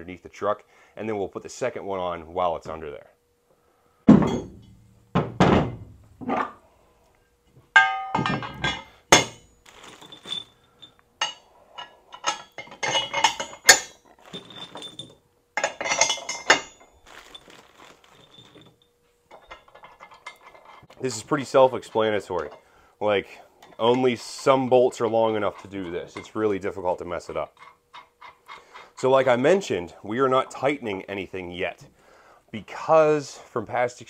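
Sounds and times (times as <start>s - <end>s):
heavy metal thunks: 4.1s - 6.3s, 7.8s - 9.4s
ringing metal clink: 7.8s - 17.6s, 18.2s - 20.8s
bolts clicking and rattling: 7.8s - 21.0s, 23.6s - 26.5s.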